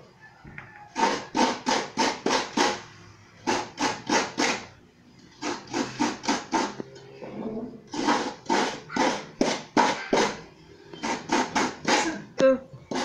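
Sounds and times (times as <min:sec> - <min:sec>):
coconut rasping on grater blade: 0:01.0 - 0:04.7, 0:05.4 - 0:06.8, 0:07.9 - 0:10.4.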